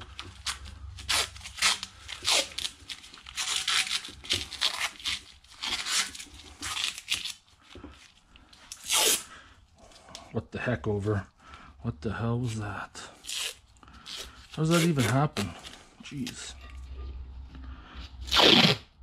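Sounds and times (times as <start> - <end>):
masking tape ripping: 0.1 - 7.4, 8.7 - 9.3, 13.2 - 16.4, 18.3 - 18.9.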